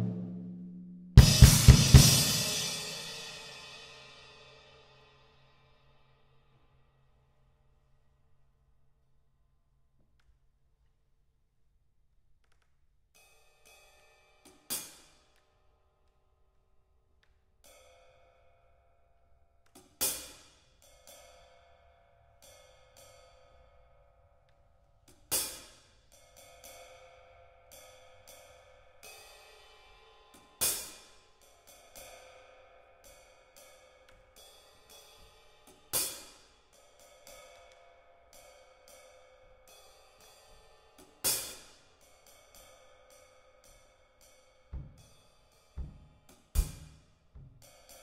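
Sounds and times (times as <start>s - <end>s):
sharp drum accent: 0.0s - 2.9s, 44.8s - 45.2s, 45.8s - 47.6s
cymbal crash: 1.2s - 4.2s
light drum taps with sticks: 44.8s - 45.2s, 45.8s - 47.7s.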